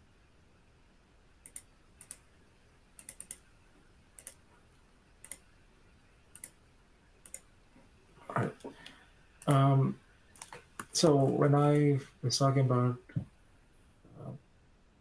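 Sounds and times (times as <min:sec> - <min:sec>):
computer mouse clicks: 0:01.4 - 0:02.3, 0:03.0 - 0:03.4, 0:04.2 - 0:04.4, 0:05.2 - 0:05.5, 0:06.3 - 0:06.6, 0:07.2 - 0:07.5, 0:08.6 - 0:09.6.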